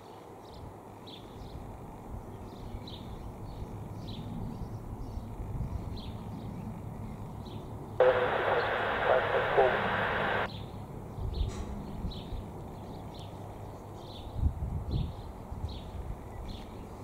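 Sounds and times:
distant jet rumble: 8.0s - 10.5s
radio chatter: 8.0s - 10.5s.

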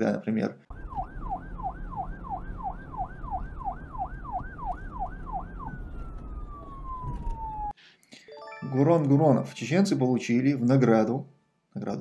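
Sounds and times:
emergency vehicle siren: 0.7s - 7.8s.

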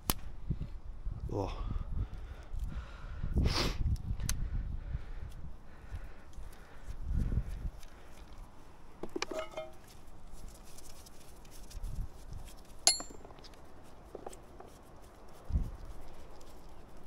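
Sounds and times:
small metal parts clinking: 9.2s - 9.8s, 12.9s - 13.4s
light handling ticks: 9.7s - 17.0s.

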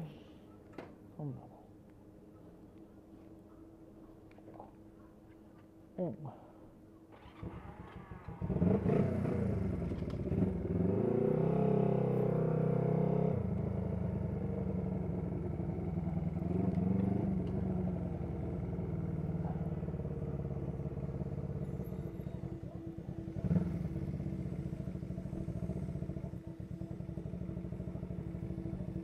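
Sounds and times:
motorcycle engine starting and revving: 7.1s - 29.0s.

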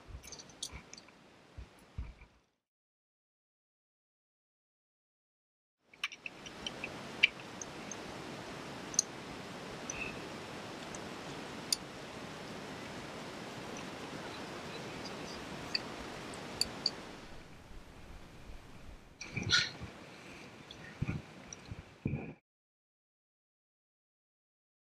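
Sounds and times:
wind rushing over microphone: 6.4s - 20.1s, 20.8s - 22.4s.

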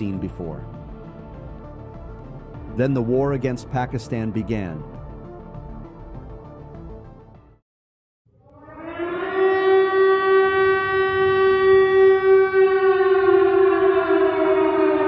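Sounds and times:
air-raid siren wailing: 8.3s - 15.0s.

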